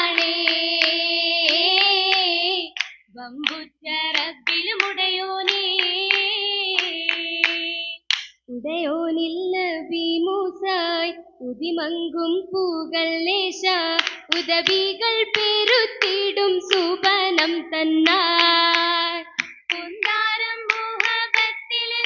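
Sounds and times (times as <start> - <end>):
rhythmic hand claps: 0.0 - 8.4, 13.6 - 22.0.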